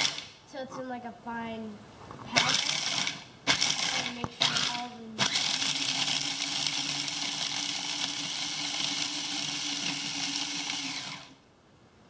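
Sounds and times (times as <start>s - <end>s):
food processor motor hum: 0.0s - 0.2s, 2.4s - 11.4s.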